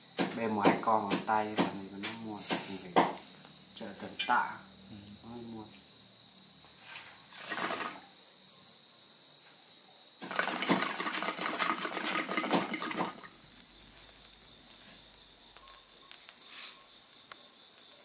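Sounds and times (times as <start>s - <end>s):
crickets chirring: 0.0s - 18.0s
wood fire crackling: 7.2s - 8.1s, 10.2s - 18.0s
water pipe bubbling: 10.2s - 13.4s.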